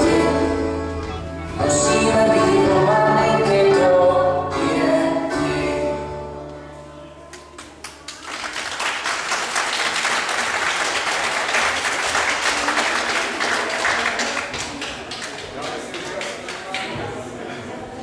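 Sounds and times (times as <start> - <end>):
audience applauding: 7.3 - 16.9.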